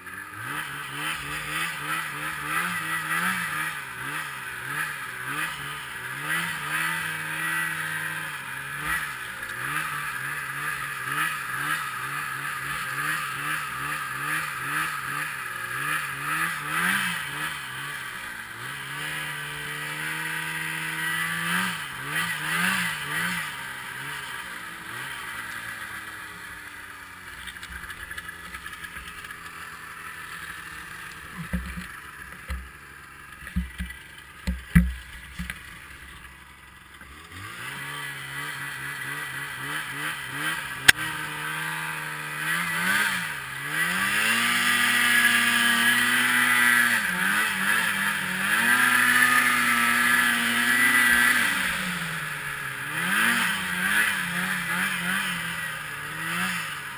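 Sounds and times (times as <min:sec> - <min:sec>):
snowmobile engine revving: 0:00.0 - 0:56.9
sharp knocks: 0:31.4 - 0:32.6, 0:33.5 - 0:35.6.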